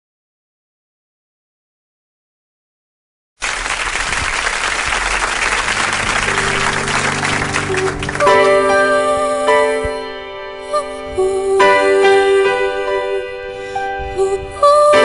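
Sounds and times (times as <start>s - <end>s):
audience applause: 3.4s - 8.6s
low held notes: 4.4s - 14.9s
keyboard chords: 5.1s - 15.0s.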